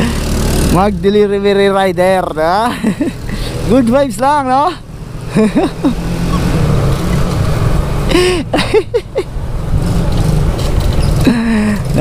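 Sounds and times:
motor scooter engine and road noise: 0.0 - 12.0
rider voice: 0.6 - 2.8, 3.5 - 4.9, 11.7 - 12.0.

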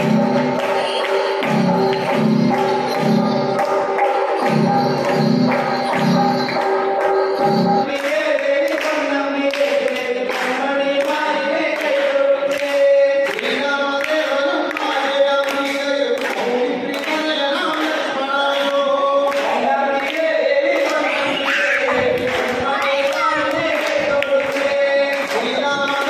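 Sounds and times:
group of voices singing: 0.0 - 26.0
percussion strokes: 0.0 - 26.0
pulsing low beat: 1.4 - 7.9.

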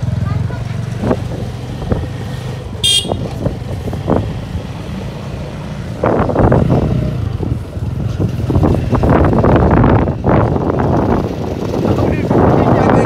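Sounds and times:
voices: 0.0 - 1.5, 11.6 - 13.0
motorcycle engine running: 0.0 - 13.0.

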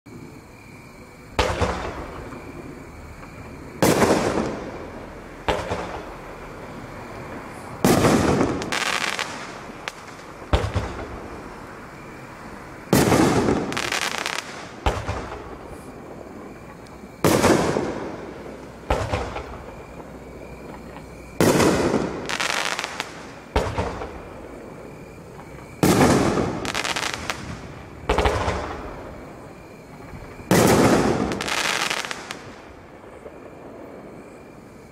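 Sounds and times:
firework bang with echo: 10.5 - 11.2, 14.8 - 15.6.

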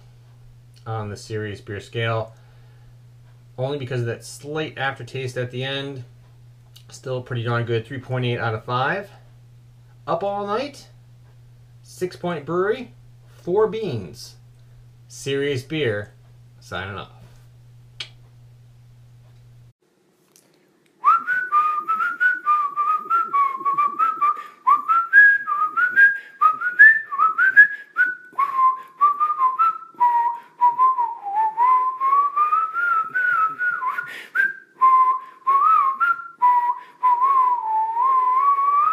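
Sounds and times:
whistled melody: 21.0 - 38.9.

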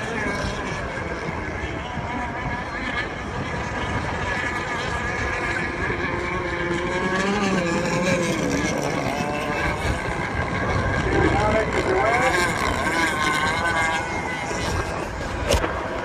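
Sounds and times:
racing boat engines at high revs: 0.0 - 16.0.

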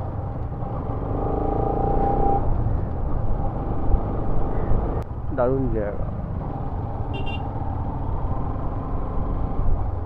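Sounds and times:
motorcycle engine: 6.0 - 10.0.

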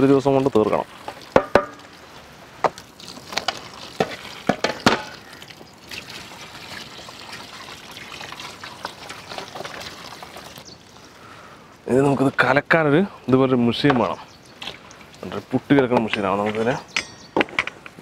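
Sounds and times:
milk trickling into pot: 0.0 - 11.2, 14.6 - 15.6
sharp knocks: 1.4 - 1.8.

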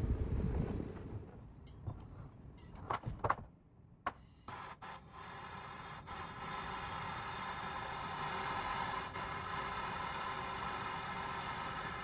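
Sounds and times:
gas torch hissing: 4.5 - 12.0.

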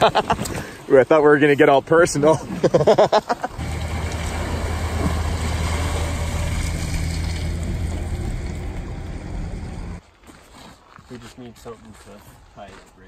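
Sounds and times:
water draining off trailer: 3.5 - 10.0
pickup truck engine running: 3.6 - 10.0.

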